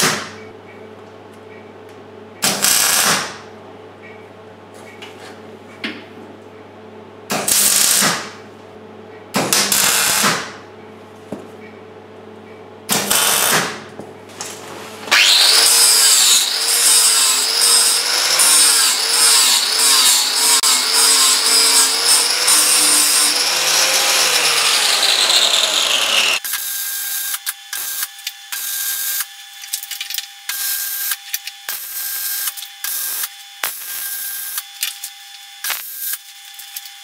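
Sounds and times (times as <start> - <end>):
angle grinder grinding steel: 15.1 - 26.4
welding crackling hiss: 26.4 - 29.3, 30.5 - 37.0.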